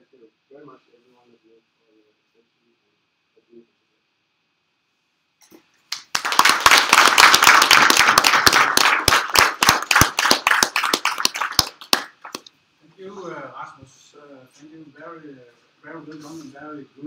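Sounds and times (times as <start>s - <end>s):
audience applauding: 5.9s - 12.5s.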